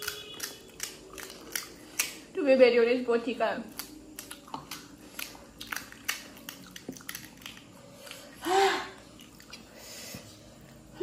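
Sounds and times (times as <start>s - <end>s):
chewing: 0.0s - 2.2s, 3.7s - 8.4s, 9.0s - 9.8s.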